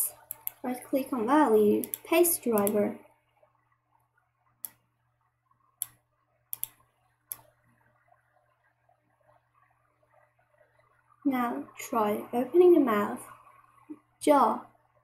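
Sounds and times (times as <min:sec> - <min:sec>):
faint low hum: 0:00.0 - 0:15.0
computer mouse clicks: 0:00.1 - 0:00.7, 0:01.8 - 0:02.8, 0:04.6 - 0:04.8, 0:05.8 - 0:07.6.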